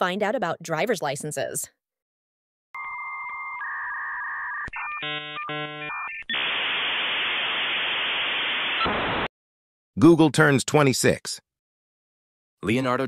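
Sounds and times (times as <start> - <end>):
modem high beeping tones: 2.8 - 6.6
loud steady hiss: 6.4 - 9.3.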